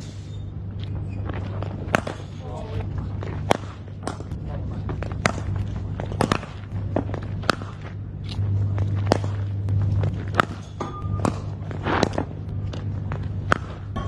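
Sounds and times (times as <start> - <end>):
steady low hum: 0.0 - 14.0
bat striking cricket balls: 1.7 - 2.4, 3.4 - 4.4, 5.0 - 8.0, 10.2 - 14.0
footsteps on pitch: 2.8 - 14.0.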